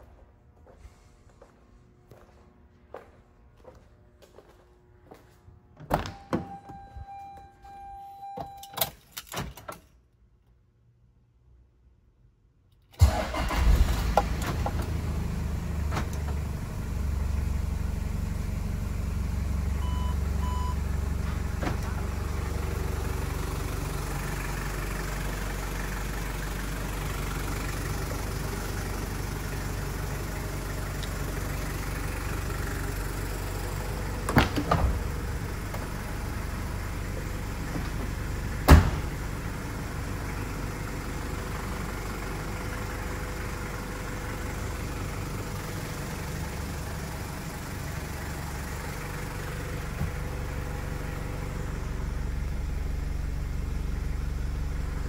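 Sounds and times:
diesel engine starting and idling: 0:12.9 - 0:55.0.

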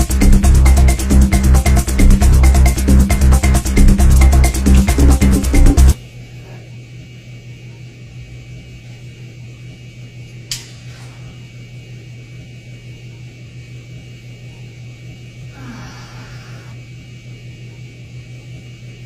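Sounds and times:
airliner cabin hum and hiss: 0:00.0 - 0:19.0
sharp click: 0:10.5 - 0:10.8.

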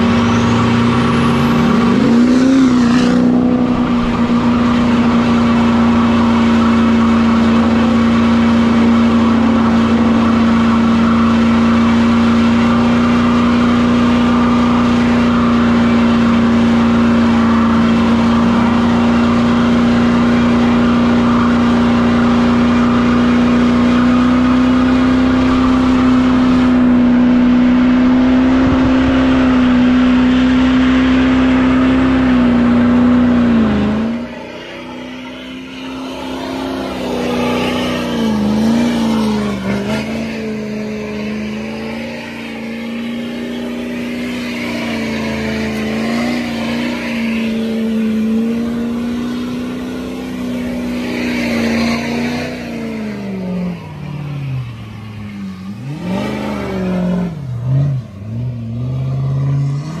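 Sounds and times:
pickup engine at high revs: 0:00.0 - 1:00.0.

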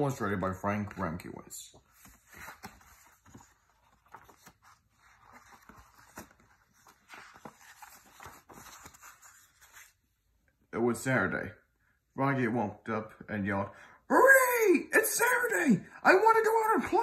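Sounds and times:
paper pages rustling: 0:00.8 - 0:10.0.

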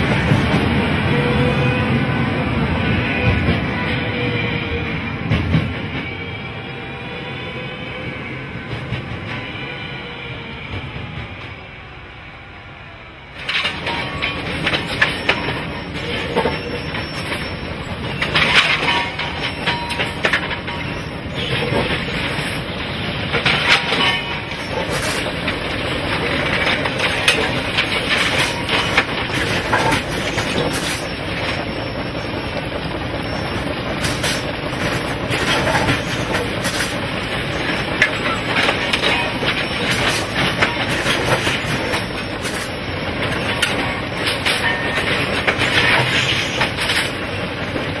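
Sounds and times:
metallic clanks and knocks: 0:13.4 - 0:31.8, 0:34.0 - 0:47.3.

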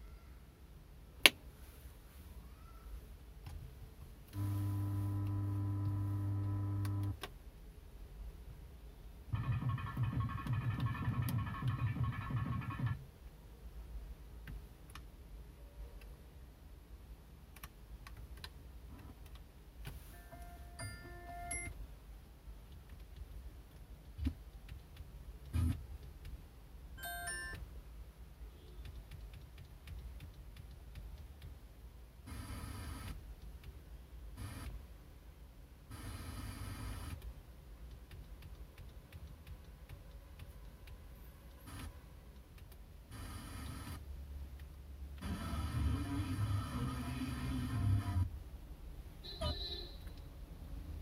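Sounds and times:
electronic hum with higher tones: 0:04.4 - 0:07.2.

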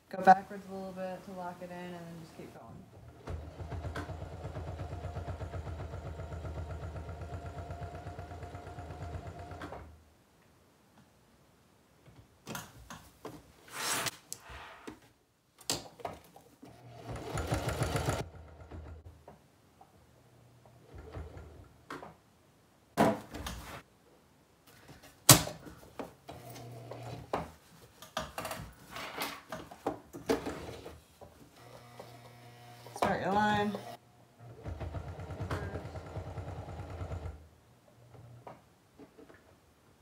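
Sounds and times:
sewing machine stitching: 0:03.0 - 0:09.9, 0:16.7 - 0:19.0, 0:31.6 - 0:37.4.

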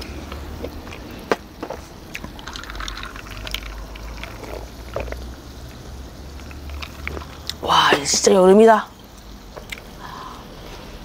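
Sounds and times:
low steady hum: 0:00.0 - 0:11.0
meat sizzling on a griddle: 0:04.5 - 0:07.4.

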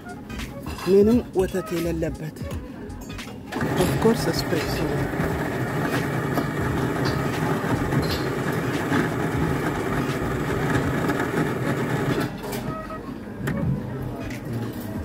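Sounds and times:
coffee machine whirring: 0:03.5 - 0:13.0.

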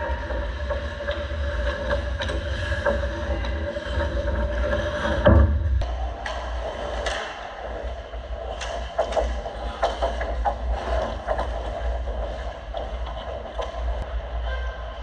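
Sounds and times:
steady low rumble: 0:00.0 - 0:15.0
hockey sticks clacking: 0:06.1 - 0:14.1.

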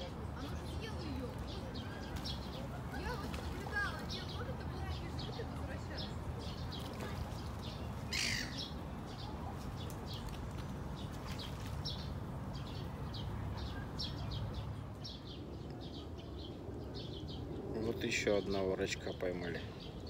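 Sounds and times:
birds chirping: 0:00.0 - 0:20.0
harsh bird call: 0:08.1 - 0:08.8.

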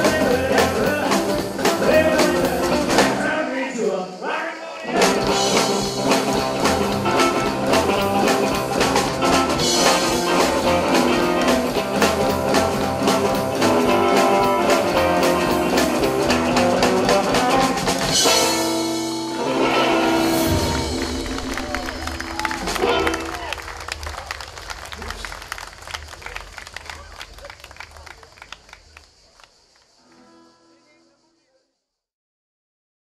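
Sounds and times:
acoustic and electric guitars: 0:00.0 - 0:03.5, 0:04.9 - 0:23.6, 0:30.0 - 0:31.1.

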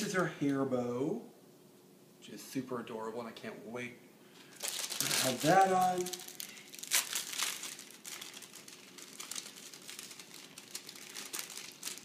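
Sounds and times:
plastic bag crinkling: 0:04.4 - 0:12.0.

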